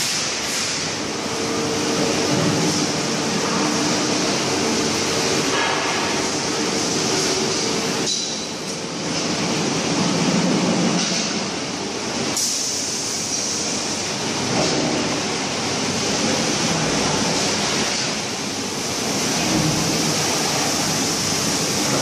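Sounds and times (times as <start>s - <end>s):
factory machinery din: 0.0s - 22.0s.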